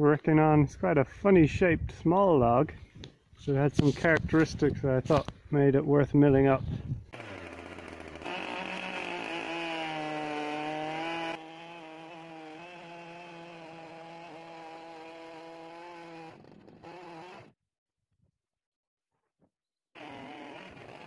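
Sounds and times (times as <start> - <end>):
chainsaw cutting log: 7.1 - 17.6, 20.0 - 21.0.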